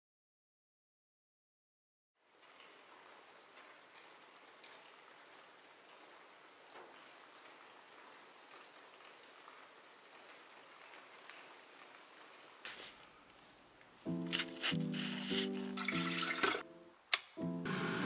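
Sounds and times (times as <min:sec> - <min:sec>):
faint steady rainfall: 0:02.2 - 0:17.1
raindrop ticks: 0:02.3 - 0:13.4.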